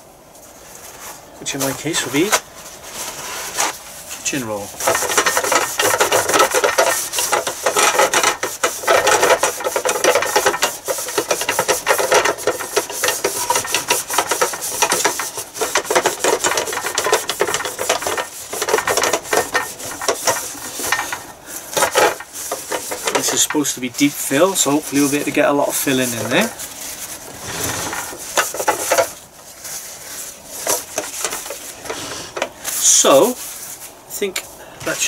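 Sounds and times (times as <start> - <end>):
paper towel rubbing on plates: 0.5 - 34.1.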